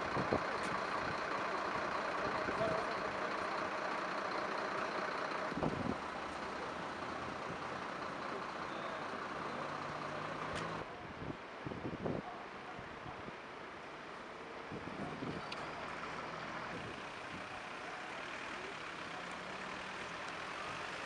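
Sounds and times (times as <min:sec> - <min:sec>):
low engine hum: 0:00.0 - 0:10.9
street traffic noise: 0:00.0 - 0:21.0.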